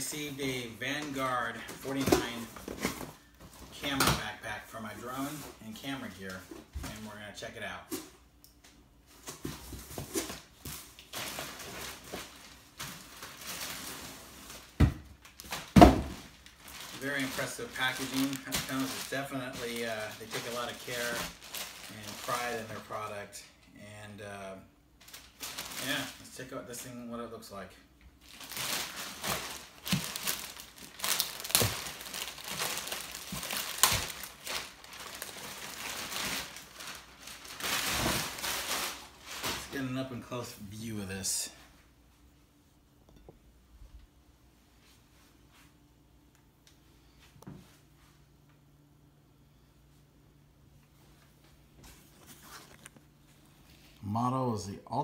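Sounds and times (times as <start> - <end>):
cardboard and plastic rustling: 0.0 - 7.2, 9.1 - 23.1, 25.0 - 26.9, 28.2 - 40.0, 51.8 - 54.0
plastic bag crinkling: 10.8 - 23.1, 25.0 - 26.9, 28.2 - 40.1.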